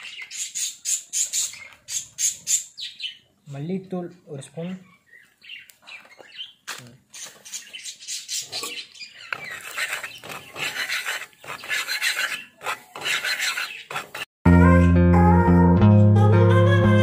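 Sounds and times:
steel spatula scraping pan: 9.4s - 14.3s.

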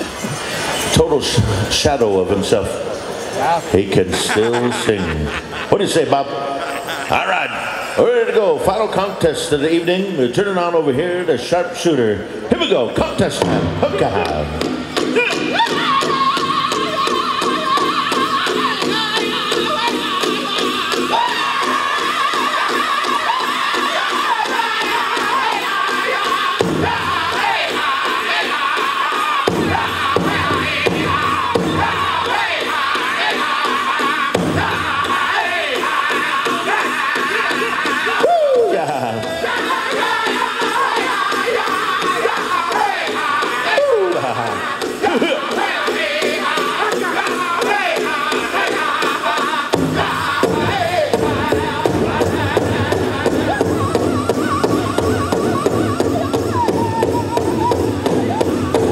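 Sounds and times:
big drum heavy beats: 12.6s - 58.9s
men singing high in unison: 13.6s - 58.9s.

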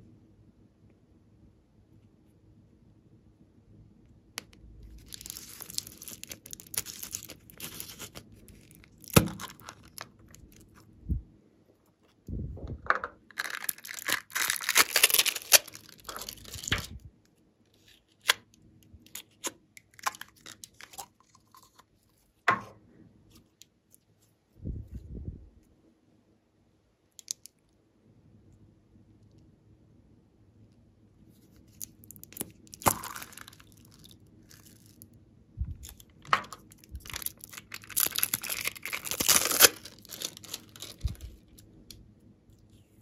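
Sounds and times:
plastic seal crinkly tearing: 5.0s - 10.8s, 13.3s - 17.0s, 17.7s - 21.8s, 31.7s - 35.0s, 35.8s - 41.6s.

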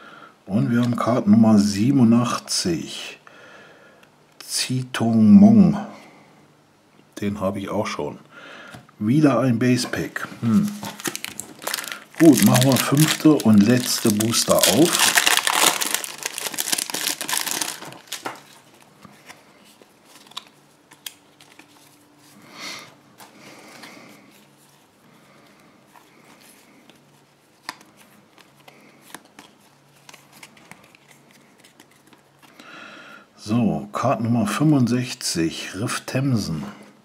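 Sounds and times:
cards being shuffled: 9.9s - 22.0s, 26.0s - 32.6s
foil pack tearing and crinkling: 10.6s - 18.8s.

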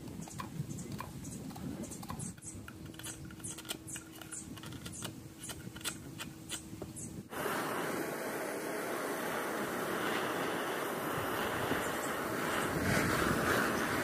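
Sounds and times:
faint steady hum: 0.0s - 14.0s
steady rushing noise: 7.2s - 14.0s.

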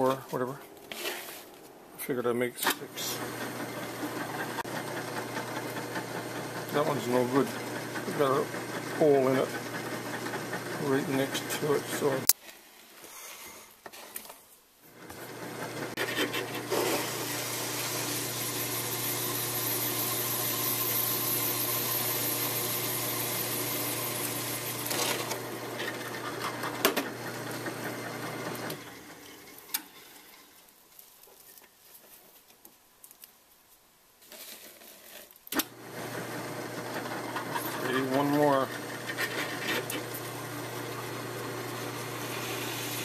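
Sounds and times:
drill press motor hum: 3.2s - 12.2s, 16.7s - 29.1s, 35.6s - 43.0s
hole saw cutting plastic: 36.9s - 40.2s.

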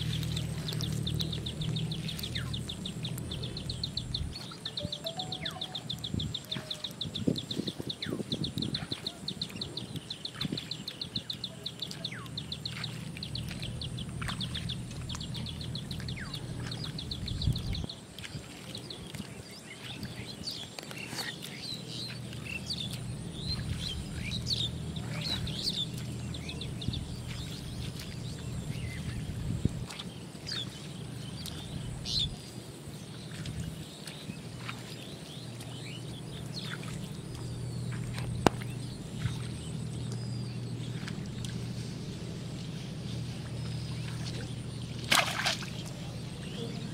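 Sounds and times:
small birds chirping: 0.0s - 46.9s.

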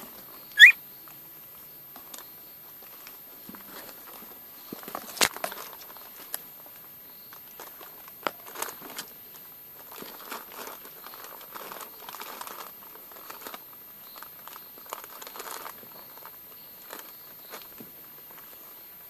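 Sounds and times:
plastic bags rustling: 7.4s - 18.6s.

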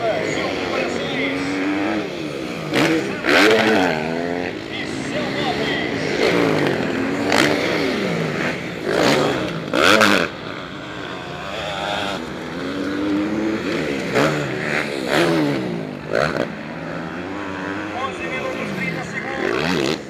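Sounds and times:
motocross bike engines revving: 0.0s - 20.0s.

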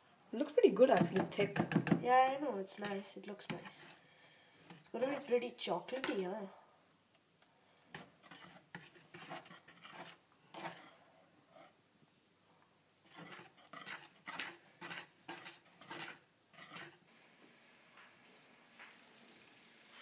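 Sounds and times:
whisk beating batter in bowl: 7.9s - 11.0s, 13.1s - 17.0s.

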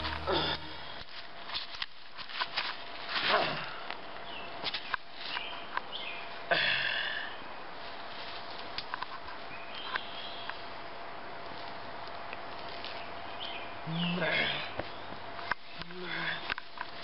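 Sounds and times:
music: 0.0s - 1.0s.

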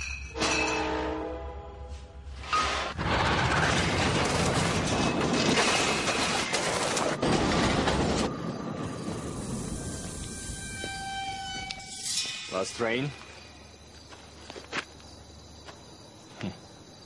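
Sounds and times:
glass bottles clinking: 0.0s - 0.9s
cart of bottles rattling: 3.1s - 9.1s.

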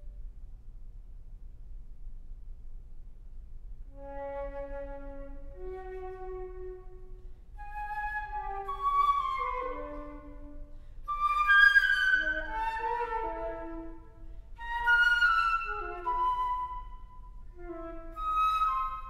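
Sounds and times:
solo flute playing: 3.9s - 19.0s.

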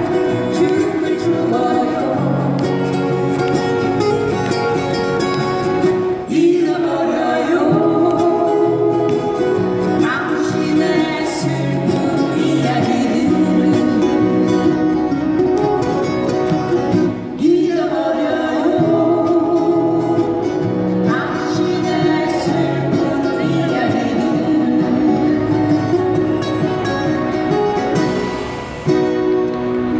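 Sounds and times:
people singing: 0.0s - 2.8s, 6.2s - 14.9s, 17.3s - 26.4s
acoustic guitars strummed: 0.0s - 29.9s.

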